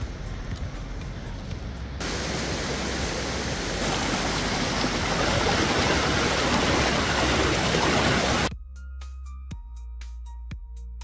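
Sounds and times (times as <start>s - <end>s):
rushing mountain stream: 2.0s - 8.5s.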